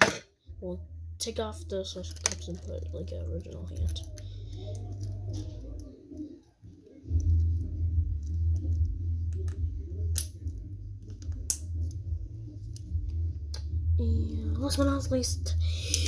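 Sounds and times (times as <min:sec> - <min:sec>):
steady low rumble: 0:07.1 - 0:16.0.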